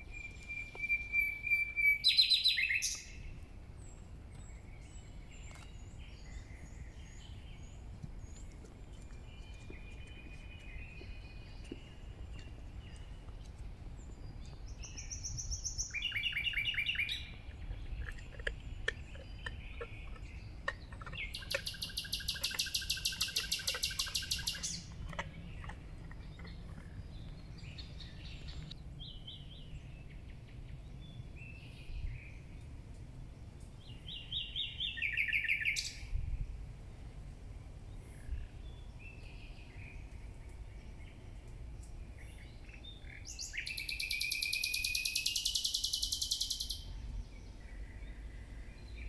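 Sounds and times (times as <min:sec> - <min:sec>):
songbirds chirping and trilling: 0:00.0 - 0:49.0
low outdoor rumble: 0:03.0 - 0:35.1, 0:46.8 - 0:49.0.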